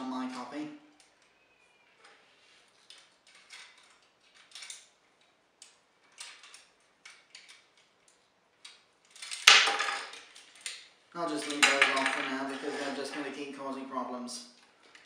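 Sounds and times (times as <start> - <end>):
plastic toy parts clicking: 2.0 - 12.2.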